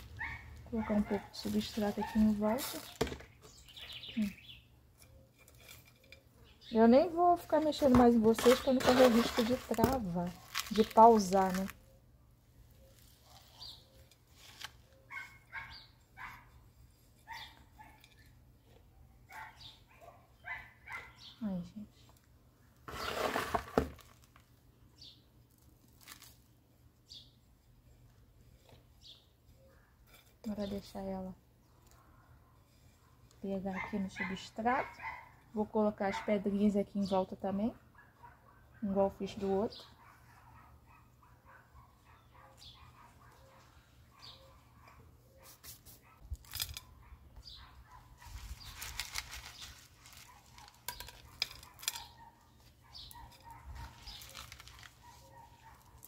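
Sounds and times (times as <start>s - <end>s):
rustling scrape: 5.0s - 6.2s, 7.4s - 11.8s, 12.8s - 14.9s, 22.9s - 24.4s, 48.1s - 56.0s
fingers crunching potting soil: 7.4s - 11.9s, 22.9s - 24.5s, 25.5s - 26.6s, 48.2s - 56.0s.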